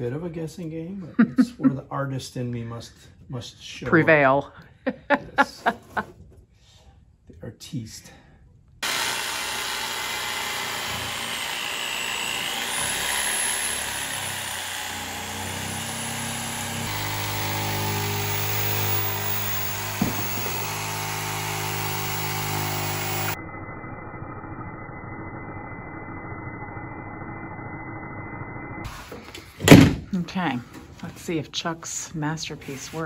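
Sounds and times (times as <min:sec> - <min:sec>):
jigsaw cutting wood: 0:08.8 - 0:23.4
sharp knock: 0:20.0 - 0:20.6.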